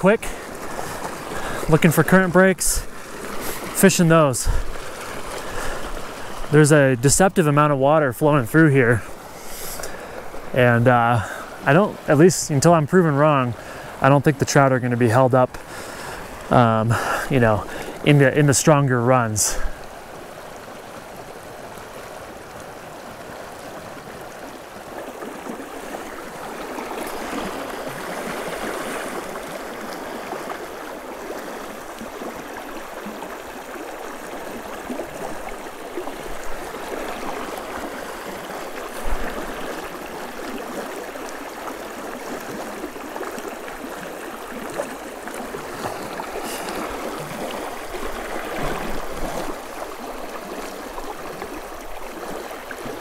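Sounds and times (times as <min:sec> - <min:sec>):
river rushing over rocks: 0:15.3 - 0:53.0.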